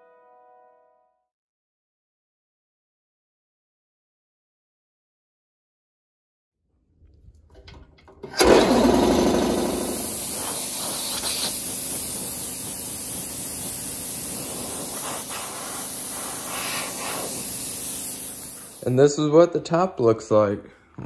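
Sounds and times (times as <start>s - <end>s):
orbital sander hissing: 8.5s - 19.1s.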